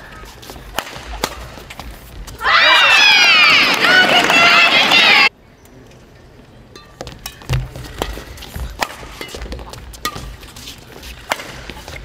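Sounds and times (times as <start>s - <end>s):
racket hitting shuttlecock: 0.3s - 2.4s, 7.0s - 12.0s
shoes squeaking on court floor: 7.0s - 12.0s.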